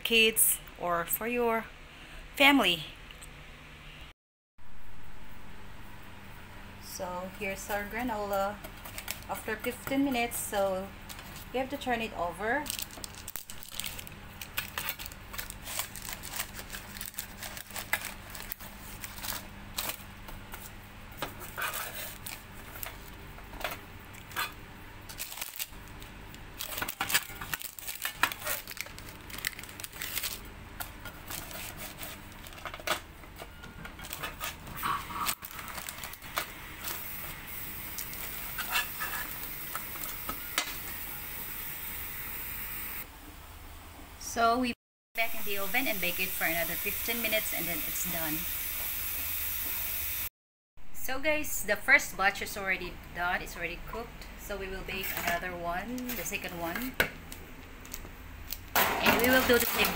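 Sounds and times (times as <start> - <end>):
utensil scraping baking pan: 38.5 - 39.3.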